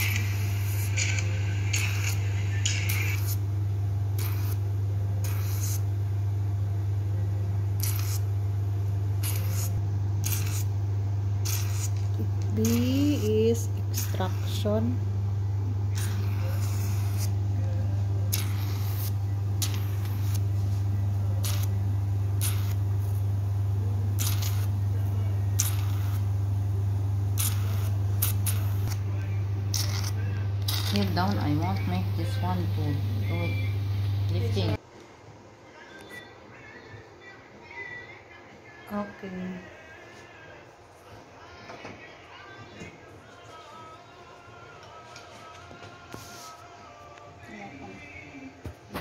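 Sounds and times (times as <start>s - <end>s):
vacuum suction hisses: 0.0s - 3.5s
machine humming: 0.0s - 34.8s.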